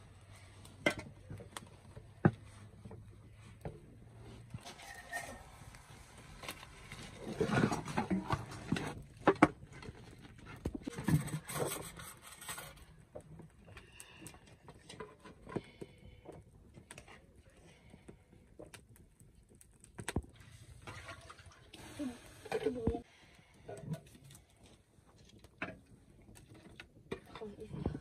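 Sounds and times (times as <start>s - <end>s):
metal pots and utensils clattering: 4.5s - 5.6s, 7.0s - 9.5s, 10.8s - 12.7s.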